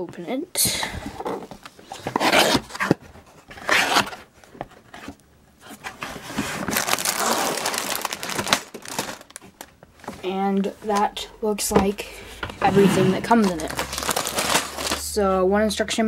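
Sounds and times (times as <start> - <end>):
plastic bags crinkling: 6.2 - 10.3, 13.2 - 15.1.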